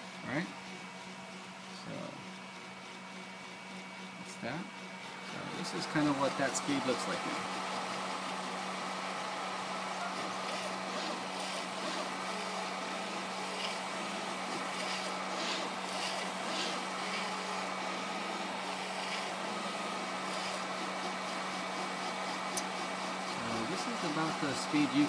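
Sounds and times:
steady hum: 0:00.0 - 0:25.0
stepper motors driving print head: 0:00.0 - 0:25.0
high-pitched whirring bursts: 0:05.1 - 0:25.0.

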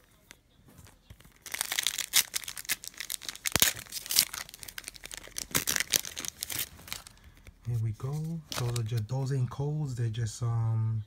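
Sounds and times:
foil wrapper tearing and crinkling: 0:00.9 - 0:07.4, 0:08.1 - 0:09.0.

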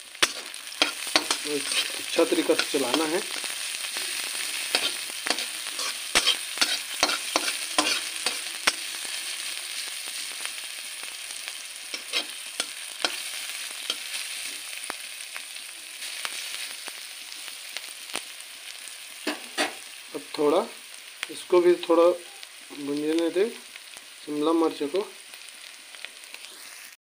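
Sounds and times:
vegetables sizzling in oil: 0:00.0 - 0:27.0
metal spatula scraping pan: 0:00.2 - 0:09.0, 0:11.9 - 0:14.2.

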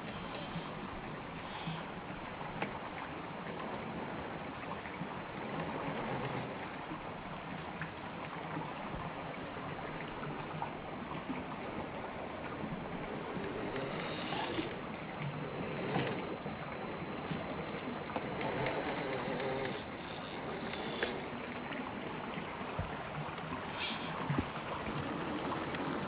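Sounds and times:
toy car motor whining: 0:13.2 - 0:16.4, 0:17.2 - 0:21.4.

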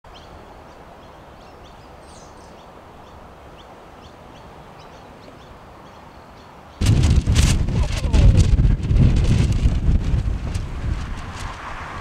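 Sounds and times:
small birds chirping: 0:00.1 - 0:06.9
wind rushing: 0:06.8 - 0:12.0.

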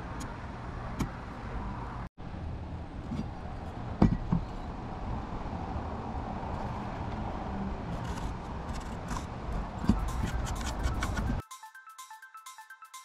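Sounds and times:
marking tool scratching wood: 0:08.0 - 0:11.4.

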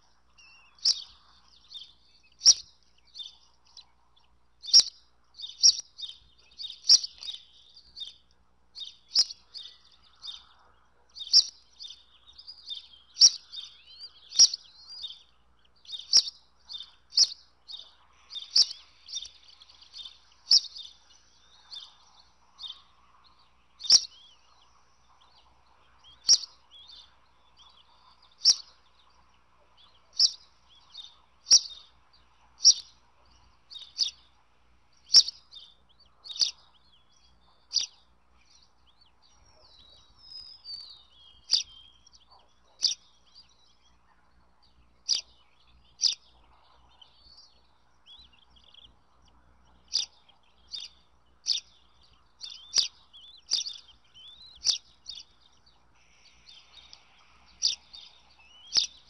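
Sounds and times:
eagle chicks peeping: 0:00.0 - 0:59.0.

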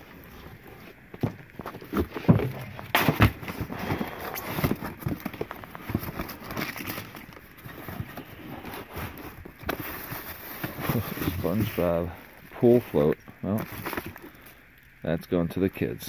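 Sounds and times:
cardboard rustling and scraping: 0:00.0 - 0:14.4
cardboard box knocks: 0:02.0 - 0:03.7.

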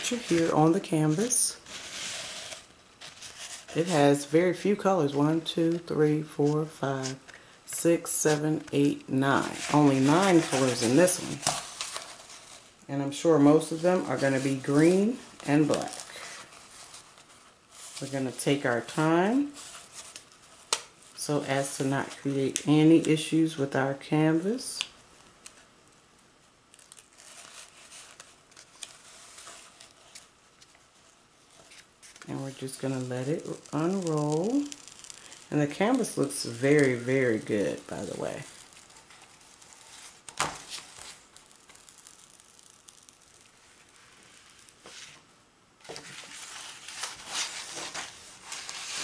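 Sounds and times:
small crackles: 0:26.7 - 0:45.2
canvas rustling and crinkling: 0:31.6 - 0:45.2.

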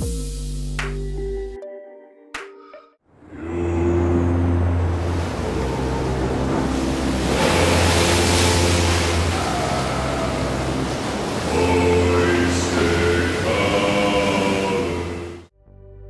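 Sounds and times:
choir-like voices holding chords: 0:03.2 - 0:15.5
surf and sea noise: 0:03.2 - 0:15.5
low bass note: 0:03.4 - 0:09.3.

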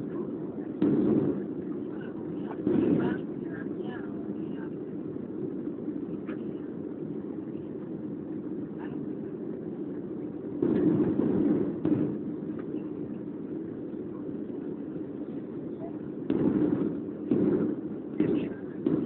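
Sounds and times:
airplane engines rumbling in cabin: 0:00.0 - 0:19.0.

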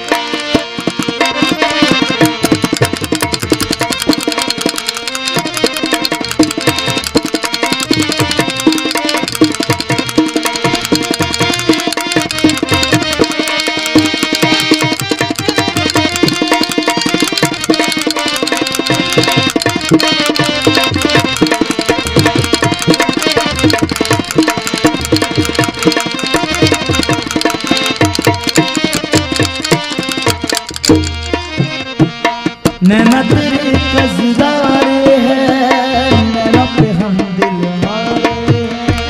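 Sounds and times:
sustained melody: 0:00.0 - 0:37.2
fast tabla strokes: 0:00.0 - 0:39.0
gliding melodic line: 0:02.8 - 0:31.6.

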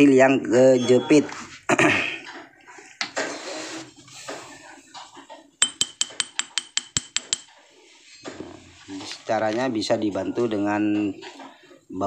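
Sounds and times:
metal-on-metal tapping: 0:05.6 - 0:07.6.

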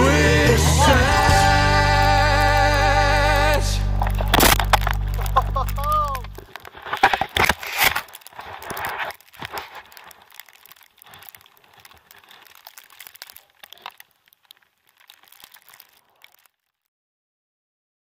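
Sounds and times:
skis crunching through powder snow: 0:04.1 - 0:16.4.

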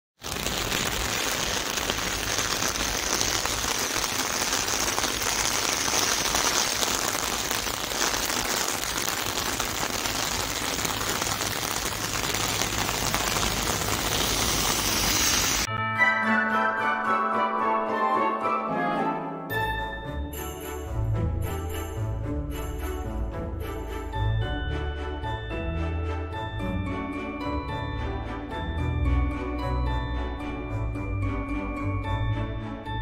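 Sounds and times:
light rain on a wet street: 0:00.2 - 0:15.7
music: 0:15.7 - 0:33.0.

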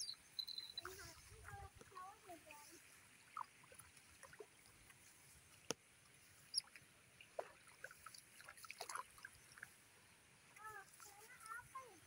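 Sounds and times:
short high chirp: 0:00.0 - 0:00.9
faint ticks and rustles: 0:00.0 - 0:12.0.

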